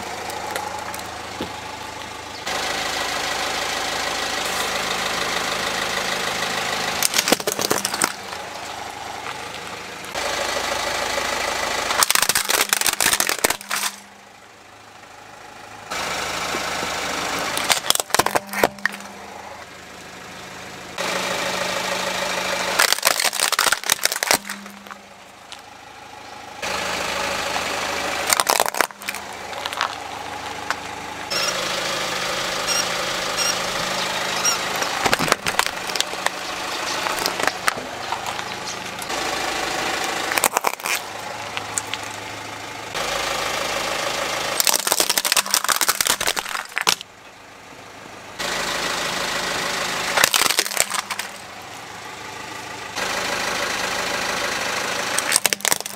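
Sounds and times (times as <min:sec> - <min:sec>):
car engine running: 0:00.0 - 0:55.9
plastic toys crunching: 0:07.0 - 0:08.4, 0:11.9 - 0:14.0, 0:17.5 - 0:19.2, 0:22.7 - 0:25.6, 0:28.2 - 0:31.5, 0:34.4 - 0:39.1, 0:40.1 - 0:42.2, 0:44.6 - 0:47.1, 0:50.1 - 0:51.4, 0:55.2 - 0:55.9.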